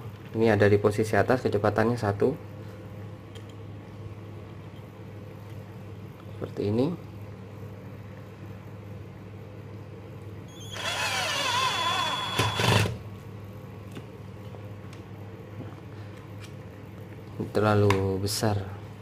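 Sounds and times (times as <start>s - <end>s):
cordless drill motor whining: 10.6s - 13.0s.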